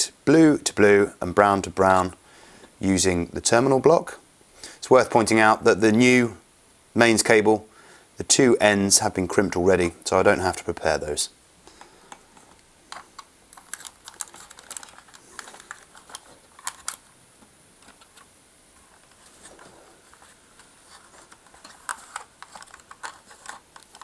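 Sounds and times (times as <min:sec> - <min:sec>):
wires clicking and rustling: 0:11.6 - 0:24.0.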